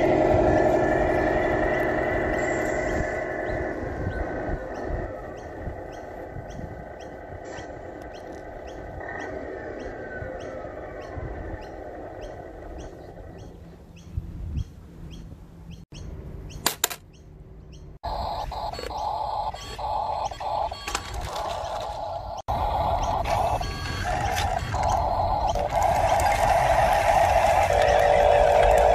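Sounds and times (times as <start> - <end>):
steady background hum: 0.0 - 28.9
toy tractor electric motor whining: 18.6 - 28.9.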